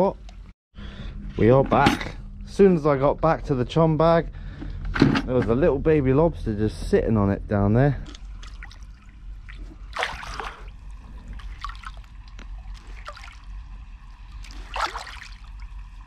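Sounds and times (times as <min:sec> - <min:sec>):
small water drips: 0:08.0 - 0:16.0
seawater lapping over rock: 0:08.1 - 0:15.9
splashy water washes: 0:08.1 - 0:15.9.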